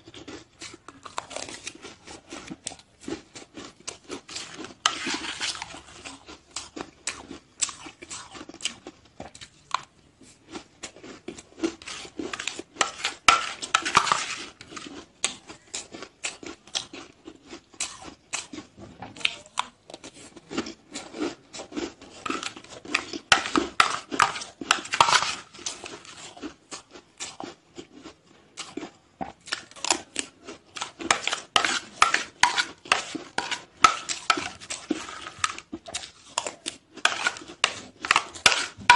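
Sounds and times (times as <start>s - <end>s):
ice crunching being chewed: 0.0s - 38.9s
spoon scraping in glass bowl: 4.3s - 6.0s, 11.7s - 14.9s, 22.2s - 26.4s, 30.8s - 38.9s.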